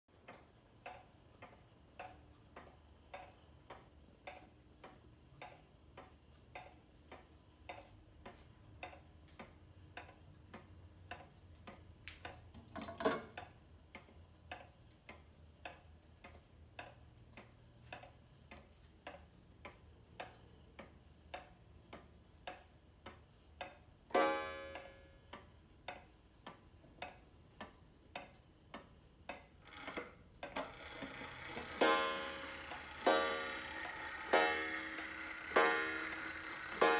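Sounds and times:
clock ticking: 0.1s - 12.6s, 13.3s - 36.9s
clock striking: 24.1s - 26.0s, 29.6s - 36.9s.

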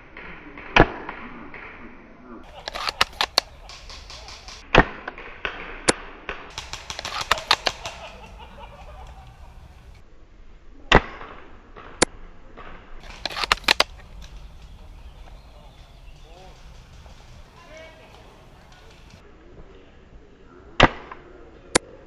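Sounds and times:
sharp cracks: 2.4s - 10.0s, 13.0s - 19.2s
airsoft gun shots: 2.5s - 10.0s, 13.0s - 19.2s.

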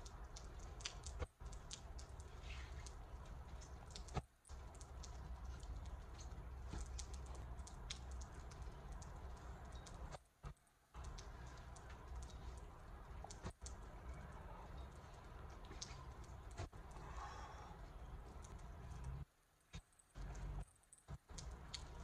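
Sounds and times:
light clicks and taps: 0.0s - 22.0s
low outdoor rumble: 0.0s - 22.0s.

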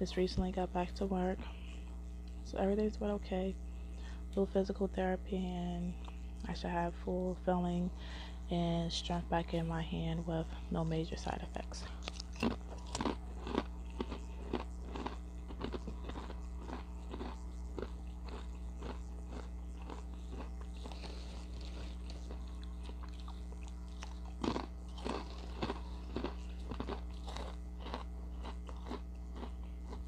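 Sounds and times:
steady low hum: 0.0s - 30.0s
chips crunching when chewed: 11.9s - 30.0s.

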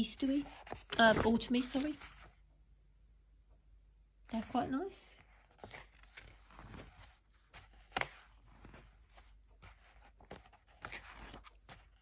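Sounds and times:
paper pages turning: 0.0s - 2.4s, 5.2s - 12.0s.

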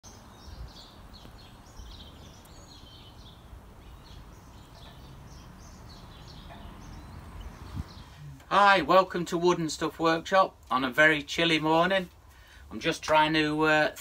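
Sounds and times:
small birds chirping: 0.0s - 9.7s.

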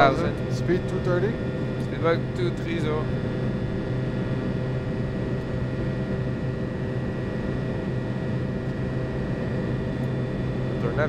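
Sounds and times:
jet engine hum: 0.0s - 11.0s
steady tones: 0.0s - 11.0s.

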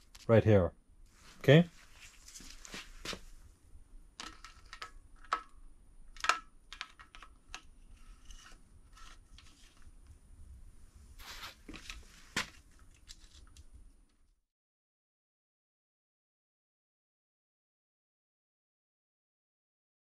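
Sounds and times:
brief rustle: 11.2s - 13.7s.

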